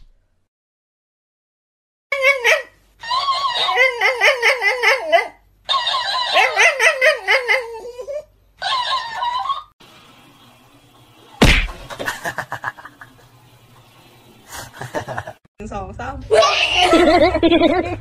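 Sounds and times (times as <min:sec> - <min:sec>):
dog whining and howling: 0:02.2 - 0:09.8
loud thump: 0:11.4 - 0:12.2.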